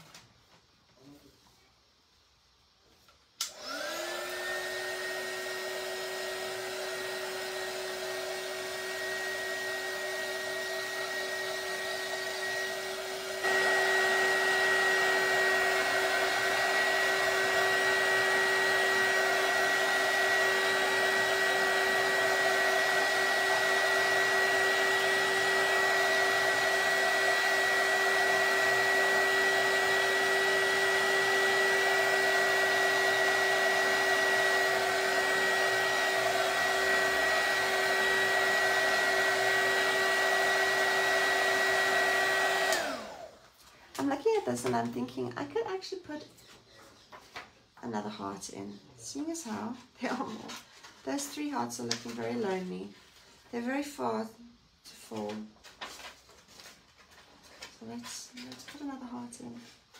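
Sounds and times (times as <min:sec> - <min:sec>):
heat tool fan blowing hum: 0:03.4 - 0:43.6.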